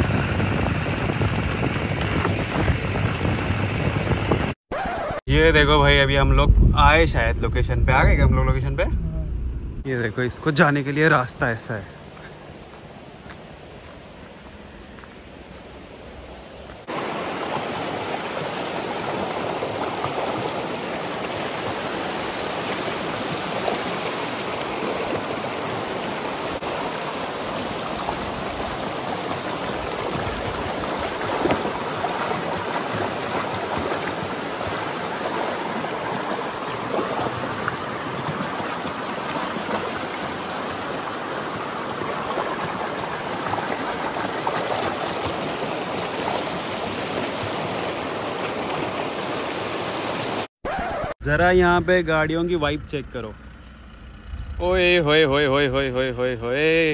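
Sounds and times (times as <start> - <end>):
river rushing over rocks: 16.8 - 50.5.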